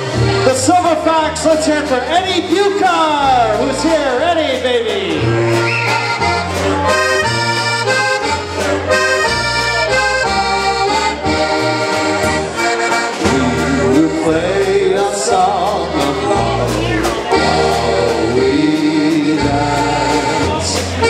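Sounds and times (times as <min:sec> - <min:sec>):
accordions playing chords: 0:00.0 - 0:21.0
bass notes: 0:00.0 - 0:21.0
drums: 0:00.0 - 0:21.0
man singing: 0:00.4 - 0:05.7, 0:13.1 - 0:21.0.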